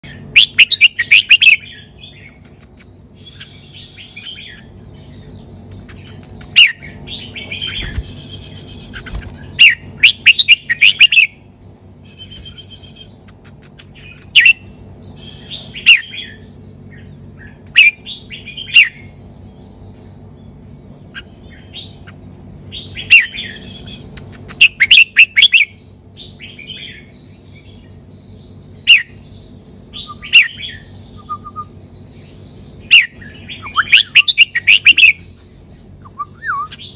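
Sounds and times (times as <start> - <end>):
faint low hum: 0.0 - 36.9
bird singing chirpy whistles: 3.2 - 4.6, 12.0 - 13.3, 29.9 - 31.8, 36.0 - 36.9.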